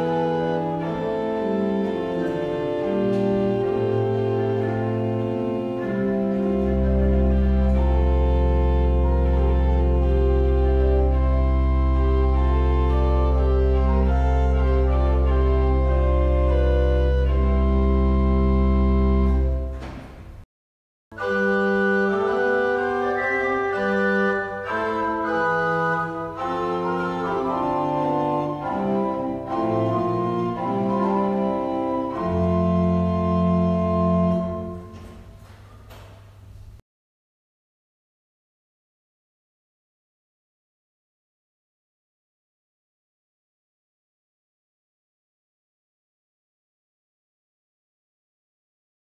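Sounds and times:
pipe organ playing chords: 0:00.0 - 0:20.2, 0:21.2 - 0:36.7.

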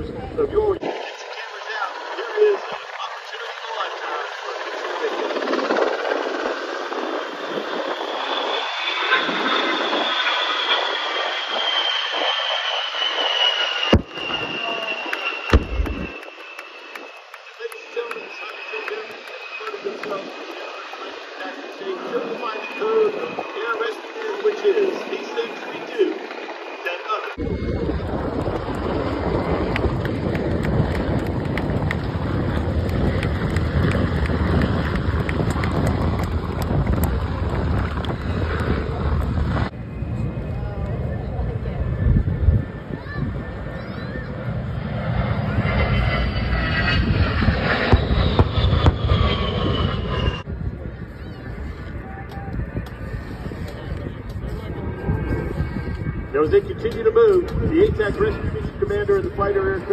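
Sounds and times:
wind buffeting the microphone: 0:00.0 - 0:01.0, 0:04.6 - 0:13.3, 0:27.4 - 0:59.9
jets flying past: 0:00.0 - 0:59.9.

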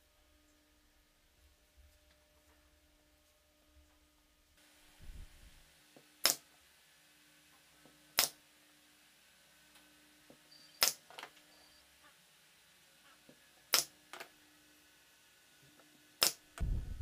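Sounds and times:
nail gun firing into wood: 0:08.2 - 0:08.4.

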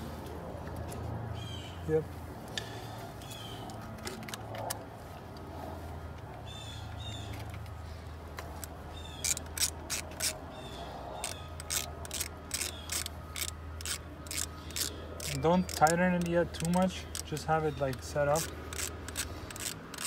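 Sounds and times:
socket ratchet clicking: 0:09.2 - 0:10.4, 0:11.2 - 0:20.0.

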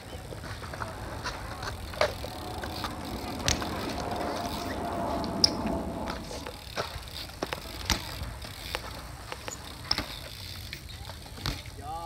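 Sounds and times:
bike knocking on concrete: 0:11.1 - 0:11.7.

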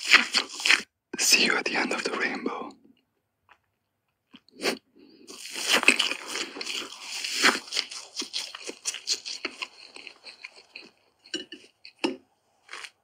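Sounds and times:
crunching and crinkling: 0:00.0 - 0:00.8, 0:05.3 - 0:13.0.

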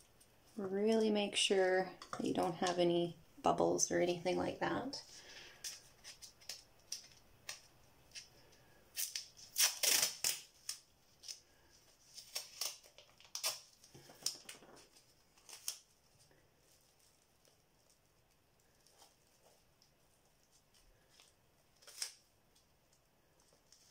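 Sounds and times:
plastic wrap crinkling: 0:05.2 - 0:23.9.

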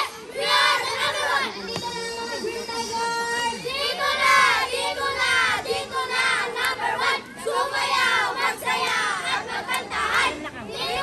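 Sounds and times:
group chanting in unison: 0:03.7 - 0:11.0.

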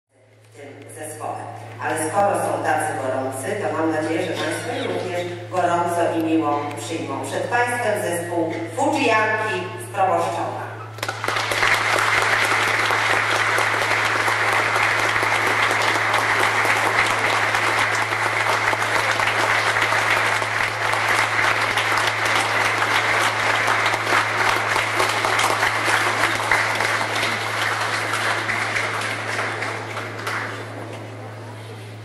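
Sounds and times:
steady low hum: 0:00.1 - 0:32.0
audience applauding: 0:11.0 - 0:31.3.

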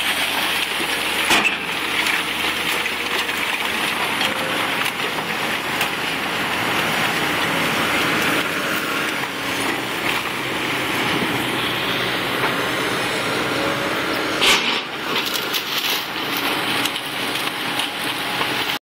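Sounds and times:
crunching and snapping of debris: 0:00.0 - 0:11.3, 0:14.4 - 0:18.8
excavators running: 0:00.0 - 0:18.8.

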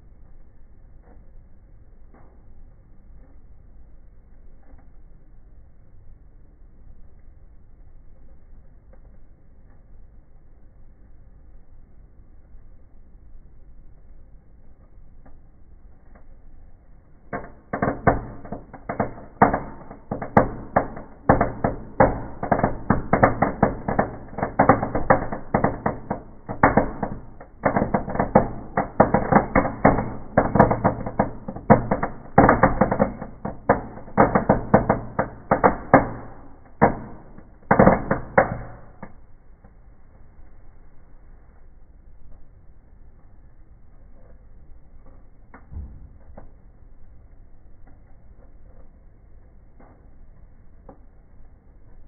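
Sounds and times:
firecrackers banging: 0:17.2 - 0:39.2.

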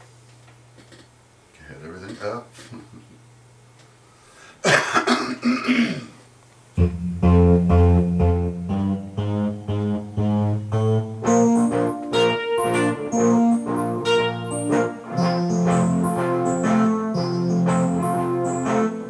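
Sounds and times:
person coughing: 0:04.6 - 0:06.2
instrumental music with bass line: 0:06.8 - 0:19.0.

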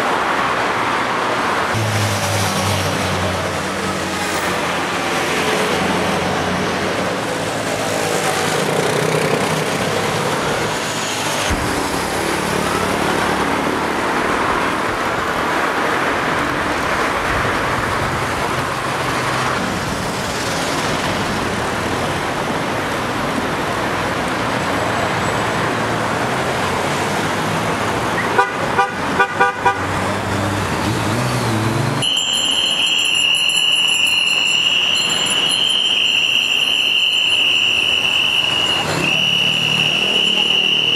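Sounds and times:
road traffic passing: 0:00.0 - 0:40.9
car horn toots: 0:28.2 - 0:29.9, 0:32.0 - 0:40.9
high-pitched whine: 0:32.0 - 0:40.9.

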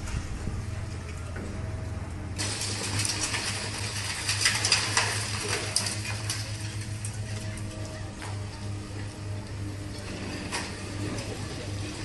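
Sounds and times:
diesel excavator engine running: 0:00.0 - 0:12.0
concrete cracking and breaking: 0:02.4 - 0:06.8
debris falling: 0:02.4 - 0:07.7.

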